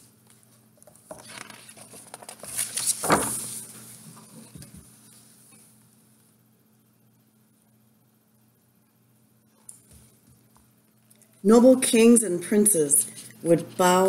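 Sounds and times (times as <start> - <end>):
book page turning: 0.8 - 5.2.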